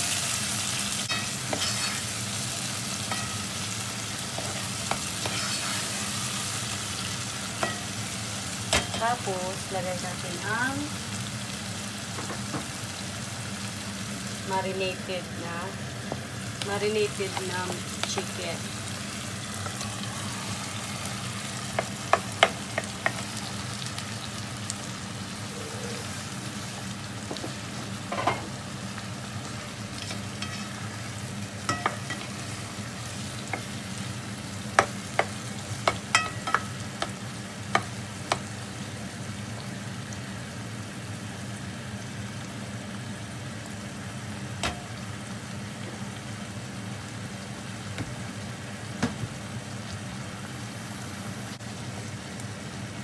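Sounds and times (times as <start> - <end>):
chicken sizzling in pot: 0.0 - 53.0
spatula scraping pot: 1.5 - 2.1, 4.4 - 6.0.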